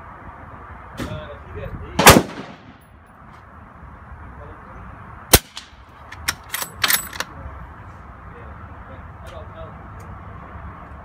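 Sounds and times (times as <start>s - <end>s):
suppressed rifle shot: 2.0s - 2.8s
rifle bolt clacking: 5.4s - 7.3s.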